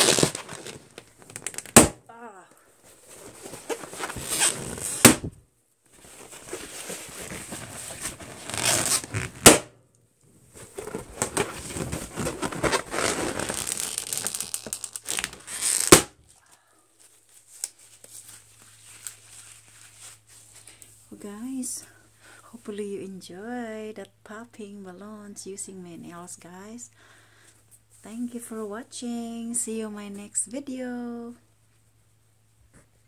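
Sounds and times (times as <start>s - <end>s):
fingernails scratching balloons: 0.0s - 1.9s, 3.3s - 5.3s, 6.9s - 9.6s, 10.8s - 16.1s
balloon popping: 0.0s - 2.1s, 4.2s - 5.4s, 8.4s - 9.8s, 10.8s - 16.2s.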